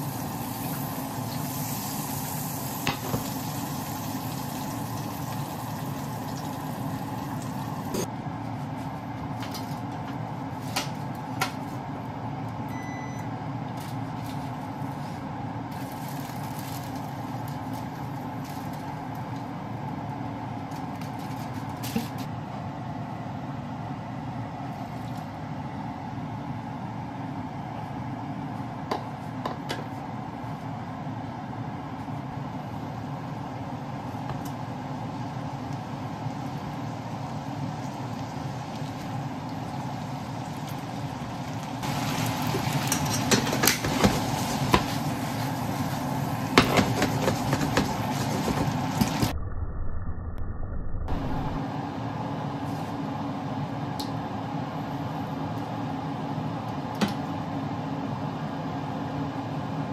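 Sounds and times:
food sizzling in a frying pan: 0:00.0 - 0:08.1, 0:35.3 - 0:49.2.

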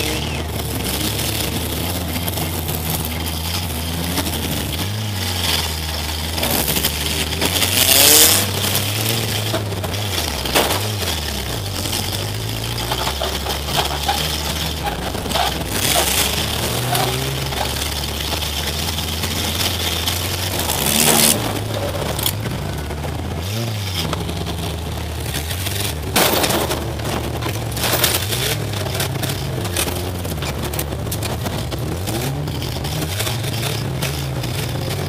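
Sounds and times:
car engine revving: 0:00.0 - 0:35.0
clattering and scraping: 0:00.0 - 0:35.0
metal crashes: 0:08.0 - 0:22.5, 0:25.6 - 0:30.0.

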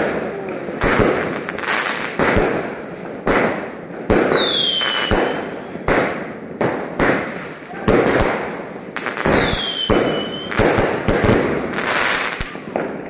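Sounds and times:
fireworks bangs with crackle: 0:00.0 - 0:13.0.

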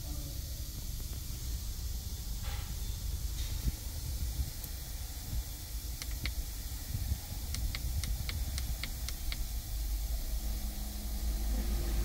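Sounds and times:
steady hiss: 0:00.0 - 0:12.0
dashboard plastic clicks: 0:06.0 - 0:06.4, 0:07.5 - 0:09.4.

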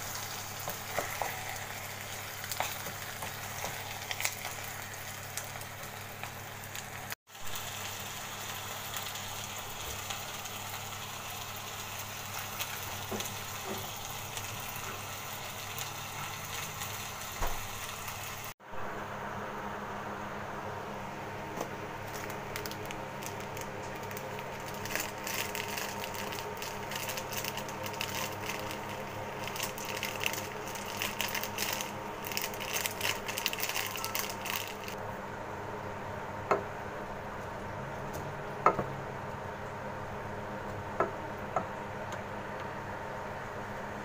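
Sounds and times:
foil packet crinkling: 0:22.0 - 0:35.0.

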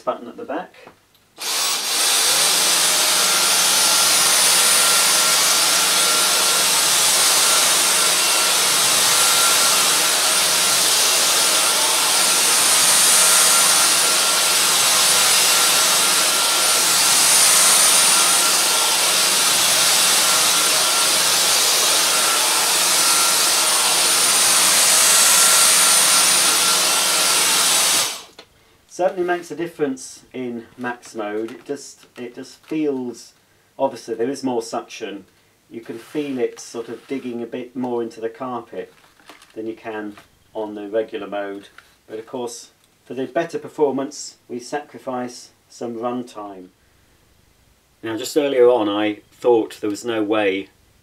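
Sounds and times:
vacuum cleaner high whine: 0:01.4 - 0:28.4.

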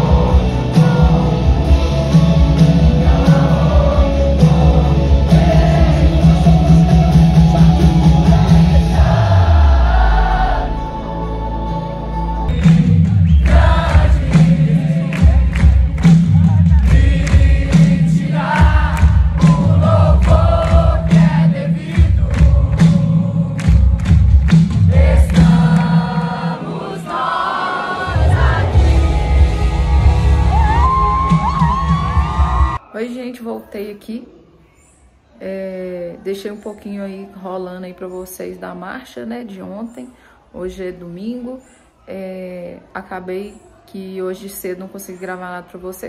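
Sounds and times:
band with heavy drum beat: 0:00.0 - 0:10.0, 0:12.5 - 0:26.8, 0:28.1 - 0:32.8
gospel choir singing: 0:00.0 - 0:16.0, 0:16.6 - 0:24.1, 0:24.7 - 0:31.2.

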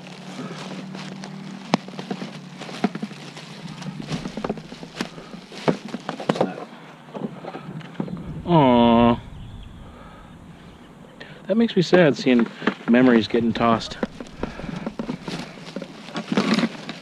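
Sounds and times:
steady low hum: 0:03.4 - 0:05.7, 0:07.6 - 0:11.6, 0:13.0 - 0:16.2.

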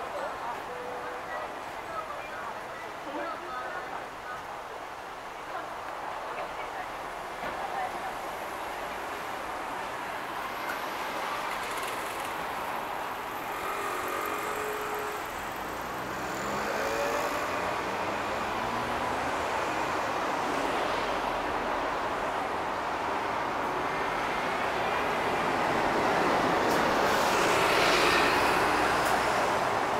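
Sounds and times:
cars driving past: 0:10.2 - 0:29.9.

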